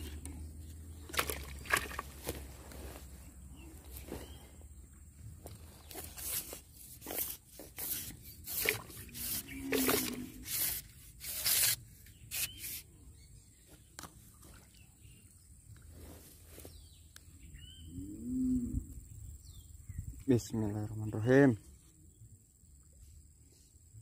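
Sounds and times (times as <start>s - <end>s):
fishing pole handling rustles: 0.0s - 12.9s.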